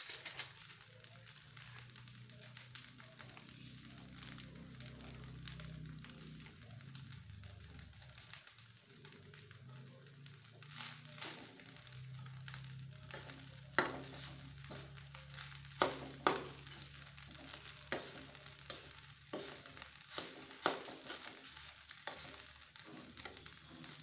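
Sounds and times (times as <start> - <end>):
rice sizzling in a wok: 0.0 - 24.0
spatula scraping and knocking pan: 10.6 - 24.0.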